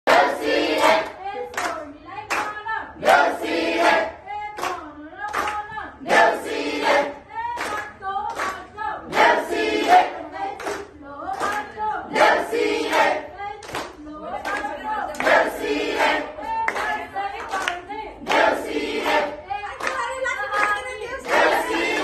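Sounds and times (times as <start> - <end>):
crowd singing: 0.1 - 1.8, 2.7 - 4.5, 5.6 - 22.0
hand claps: 0.8 - 2.6, 4.5 - 5.8, 7.5 - 11.7, 12.9 - 22.0.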